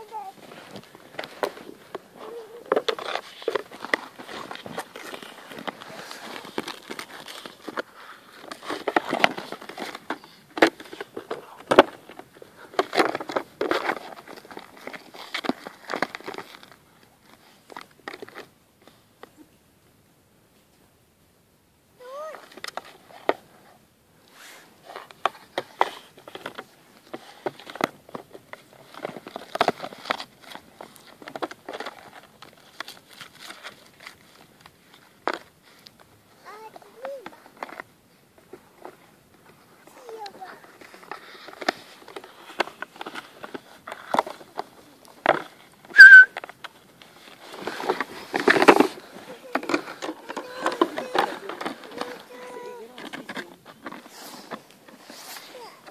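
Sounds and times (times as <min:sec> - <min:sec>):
plastic toy crackling and scraping: 0:00.0 - 0:19.0, 0:22.0 - 0:55.9
short high whistle: 0:45.9 - 0:46.4
brief squeak: 0:46.0 - 0:46.4.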